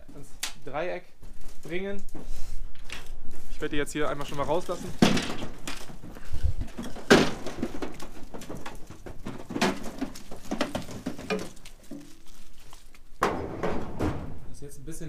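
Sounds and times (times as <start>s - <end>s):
hooves clattering on metal floor: 4.1s - 12.6s.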